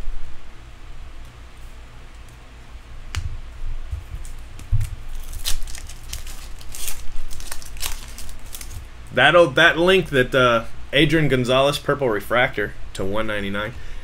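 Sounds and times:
cards handled: 0:04.0 - 0:08.8
foil wrapper crinkling and tearing: 0:04.2 - 0:08.9.

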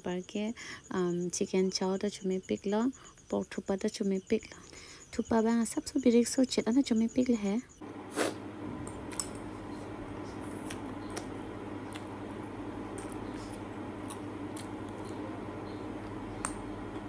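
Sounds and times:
steady low hum: 0:00.0 - 0:17.0
person chewing: 0:08.1 - 0:09.4, 0:10.4 - 0:15.2.

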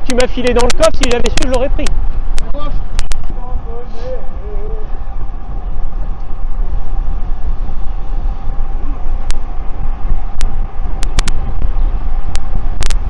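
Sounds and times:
faint steady hum: 0:00.0 - 0:13.0
wind rumble on microphone: 0:00.0 - 0:13.0
sharp microphone crackles: 0:00.1 - 0:03.4, 0:06.0 - 0:13.0.

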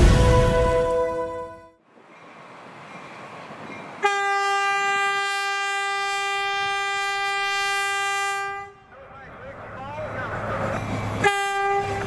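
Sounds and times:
train horn blowing: 0:00.0 - 0:01.8, 0:04.0 - 0:08.9, 0:11.2 - 0:12.0.

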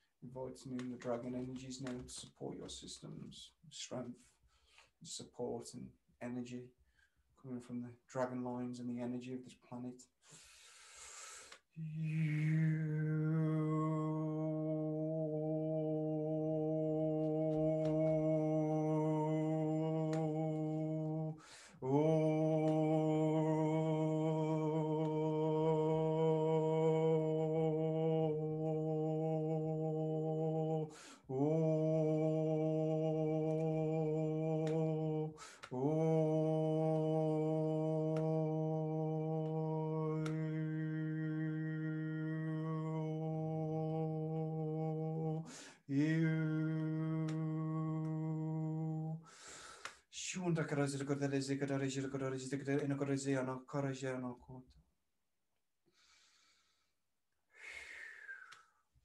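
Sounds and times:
quick in-breath: 0:10.2 - 0:11.6, 0:21.4 - 0:21.8, 0:30.9 - 0:31.3, 0:35.4 - 0:35.7, 0:45.5 - 0:45.8, 0:49.2 - 0:50.1
man humming a low note: 0:11.8 - 0:49.2.

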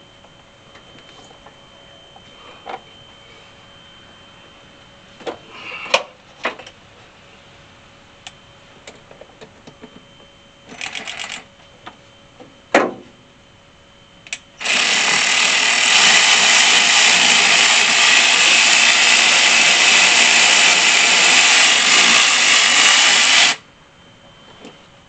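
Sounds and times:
power screwdriver running: 0:14.6 - 0:23.6.

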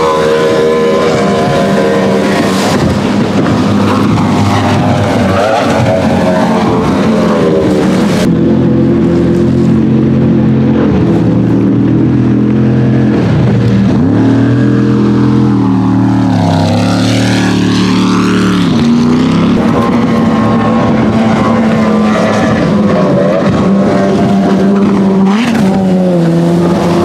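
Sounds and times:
speedboat engines passing: 0:00.0 - 0:27.0.

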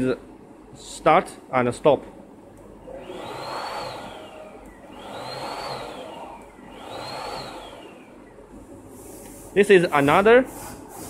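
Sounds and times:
rising and falling whine: 0:02.9 - 0:08.4
cold spark machine whooshing: 0:03.0 - 0:08.2.

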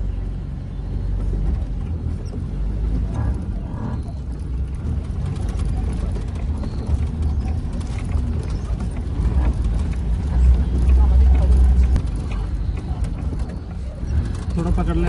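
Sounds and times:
vehicle engine rumbling: 0:00.0 - 0:15.0.

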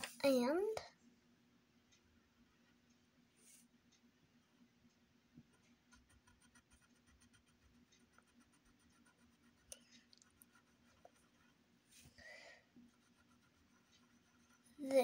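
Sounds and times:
low steady hum: 0:00.0 - 0:15.0
pencil scratching on paper: 0:05.5 - 0:11.6, 0:12.8 - 0:15.0.

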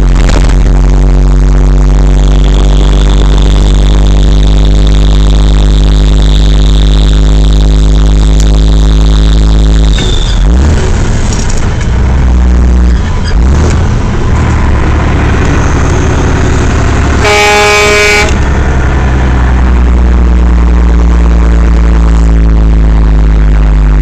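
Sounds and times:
diesel truck engine droning: 0:00.0 - 0:24.0
truck air horn blast: 0:16.6 - 0:18.5.

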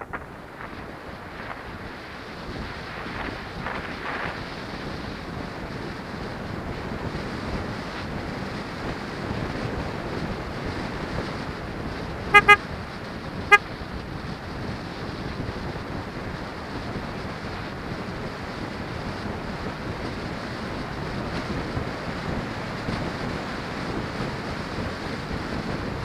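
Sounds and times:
wind on microphone: 0:00.0 - 0:26.0
short horn beeps: 0:12.3 - 0:12.6, 0:13.5 - 0:13.7.

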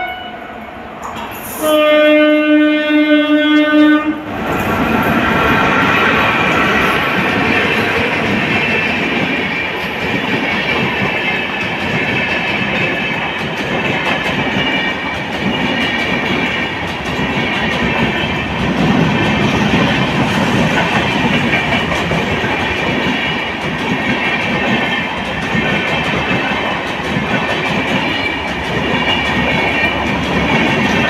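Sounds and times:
train wheels rushing on rails: 0:00.5 - 0:31.0.

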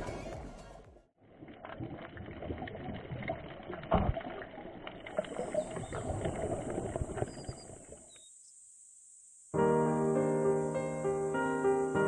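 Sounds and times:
underwater bubbles burbling: 0:01.2 - 0:08.1.

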